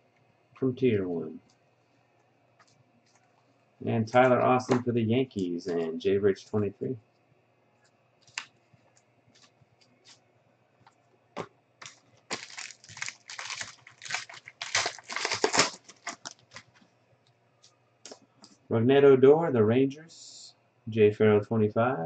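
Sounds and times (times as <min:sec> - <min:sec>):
foil wrapper crinkling and tearing: 0:11.8 - 0:16.8.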